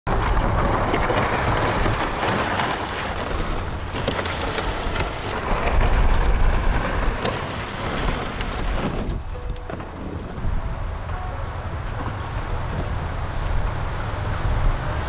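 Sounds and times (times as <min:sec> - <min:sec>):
plastic sled scraping asphalt: 0:00.1 - 0:10.6
low rumble: 0:03.0 - 0:15.0.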